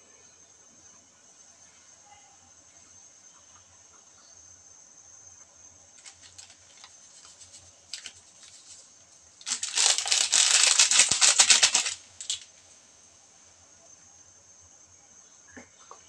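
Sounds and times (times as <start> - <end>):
plastic sachet crinkling: 6.0 - 12.5.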